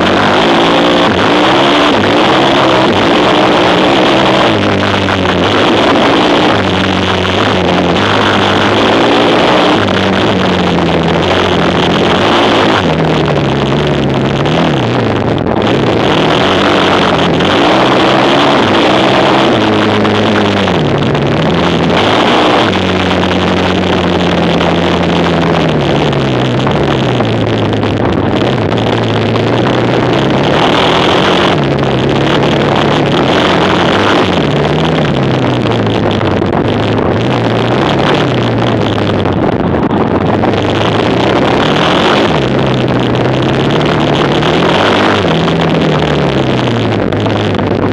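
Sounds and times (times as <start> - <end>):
quad bike engine racing: 0.0 - 47.9.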